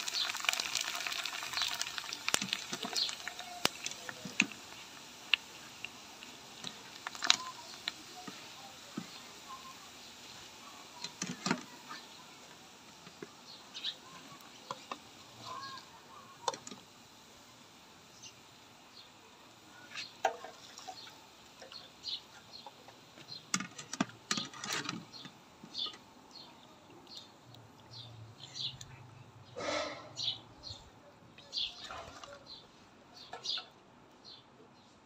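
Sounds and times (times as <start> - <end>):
bird chirps: 6.7 - 12.2.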